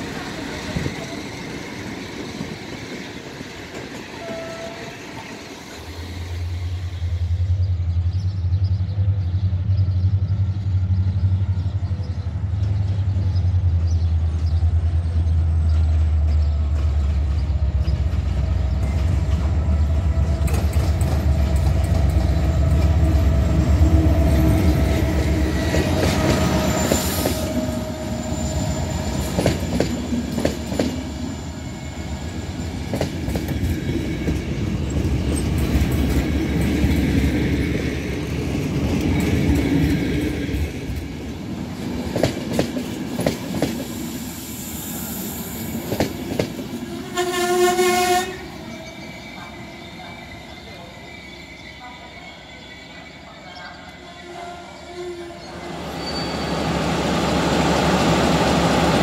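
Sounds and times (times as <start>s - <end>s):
train wheels clattering on rails: 13.8s - 31.2s, 32.4s - 44.0s, 45.7s - 46.8s
brake squeal: 55.1s - 56.7s.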